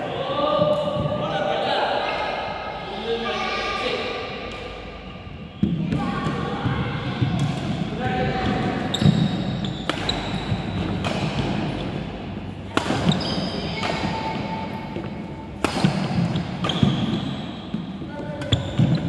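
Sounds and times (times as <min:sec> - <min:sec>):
shoes squeaking on wooden floor: 0:08.9 - 0:10.9
racket hitting shuttlecock: 0:09.0 - 0:11.9, 0:12.7 - 0:17.4.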